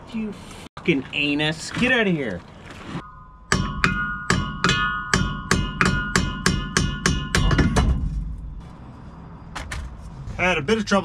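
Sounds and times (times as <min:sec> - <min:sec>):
hammer striking metal driveshaft: 0:03.0 - 0:08.6.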